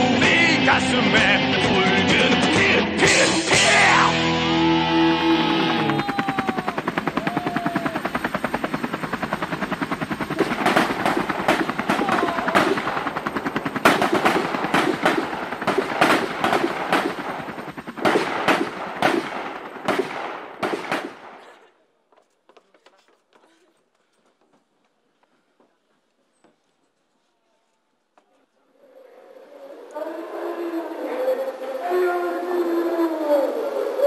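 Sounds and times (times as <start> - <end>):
gunfire sound effect: 10.4 - 13.2, 13.8 - 21.6.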